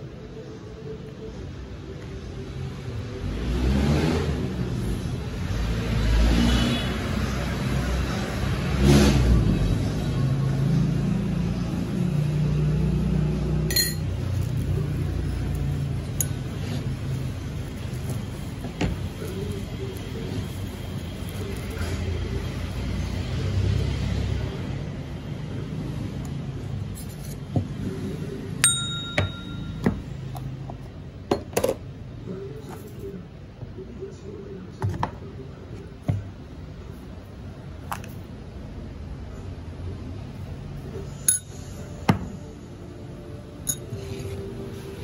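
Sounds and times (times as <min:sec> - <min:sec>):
sharp ringing clink: 0:13.7 - 0:14.1, 0:28.6 - 0:30.0, 0:41.3 - 0:41.8
utensils knocking and tapping: 0:28.6 - 0:30.1
low steady hum: 0:28.6 - 0:30.4.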